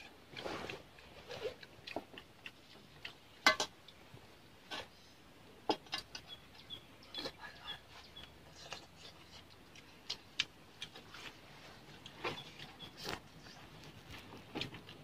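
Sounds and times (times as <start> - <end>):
bird chirping: 6.1 - 8.8, 12.2 - 13.5.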